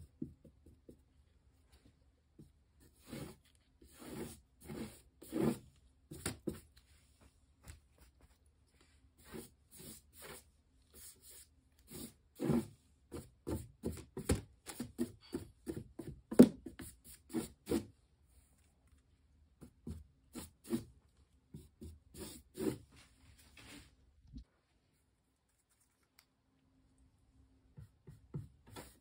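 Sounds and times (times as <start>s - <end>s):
paintbrush scrubbing on canvas: 2.8s - 13.6s, 21.6s - 23.9s.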